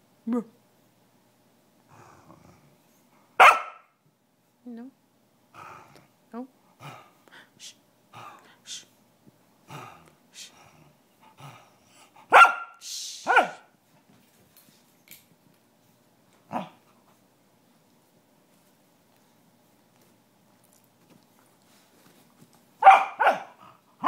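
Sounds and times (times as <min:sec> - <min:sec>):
dog barking: 0:03.4 - 0:03.9, 0:12.3 - 0:13.7, 0:22.8 - 0:23.6.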